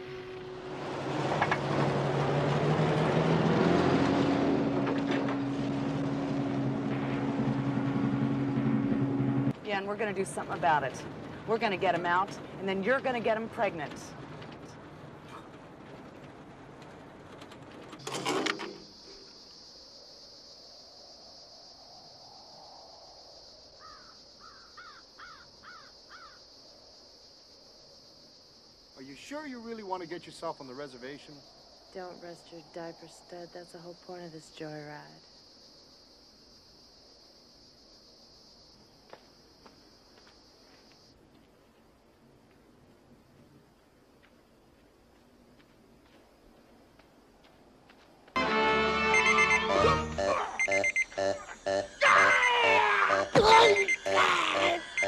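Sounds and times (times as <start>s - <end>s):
high insect drone: 0.0s - 2.4s, 18.0s - 42.1s, 48.8s - 55.0s
truck engine revving: 0.0s - 9.6s
crow cawing: 23.8s - 26.4s.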